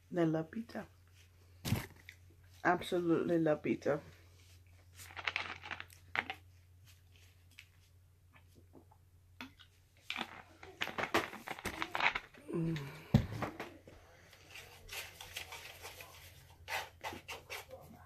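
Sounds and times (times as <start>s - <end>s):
crinkling and crackling from eating: 4.2s - 18.0s.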